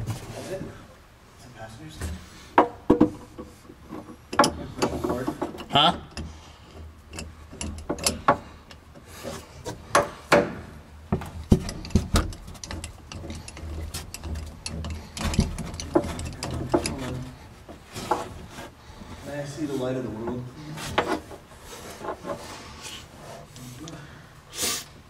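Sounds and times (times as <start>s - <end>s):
metal clicks and scrapes: 11.4s - 18.7s.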